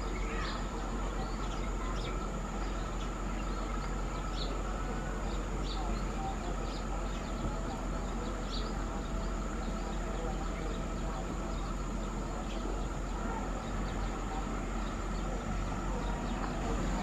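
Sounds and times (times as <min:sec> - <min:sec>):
diesel engines idling: 0:00.0 - 0:17.0
high insect drone: 0:00.0 - 0:17.0.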